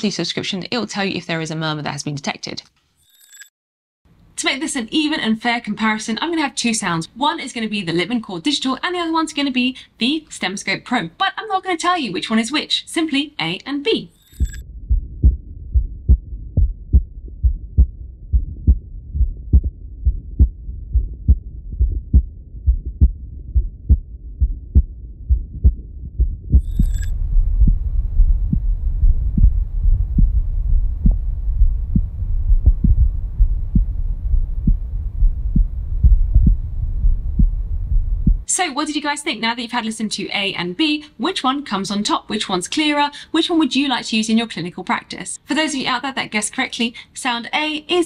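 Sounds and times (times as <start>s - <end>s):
heartbeat thumps: 14.3s - 38.5s
low hum with faint hiss: 26.6s - 48.0s.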